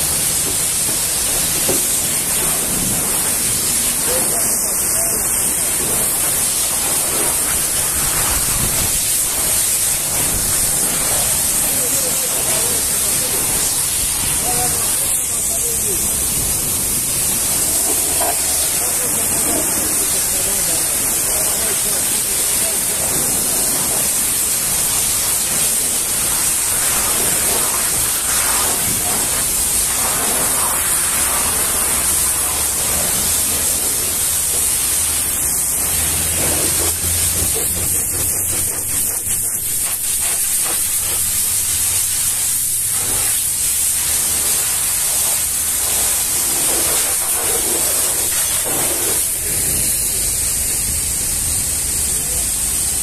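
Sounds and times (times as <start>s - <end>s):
pressure washer jet hissing: 0.0s - 53.0s.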